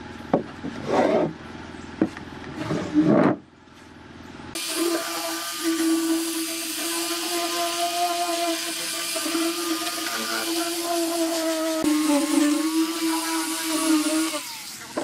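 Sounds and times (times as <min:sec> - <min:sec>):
loud scrape: 0:00.8 - 0:01.4, 0:02.6 - 0:03.4
angle grinder sanding wood: 0:04.6 - 0:15.0.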